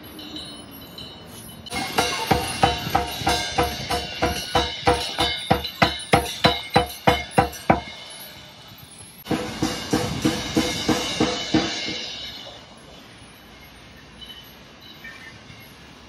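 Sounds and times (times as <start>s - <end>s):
hand drums beating: 1.7s - 8.0s.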